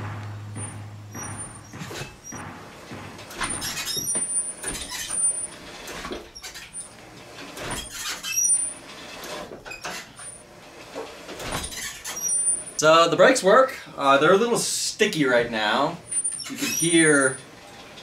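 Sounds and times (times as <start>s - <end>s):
knocks: 0.0s - 6.4s
brakes dragging and scraping: 0.0s - 12.9s, 16.0s - 18.0s
short high brake squeaks: 7.7s - 8.8s, 11.6s - 12.8s, 16.1s - 17.9s.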